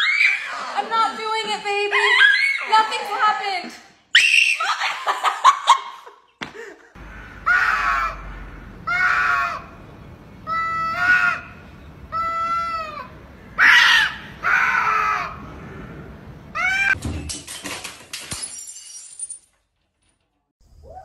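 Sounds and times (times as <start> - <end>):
cats yowling: 12.1 - 15.4, 16.6 - 17.0
knocks and clattering: 17.0 - 20.5.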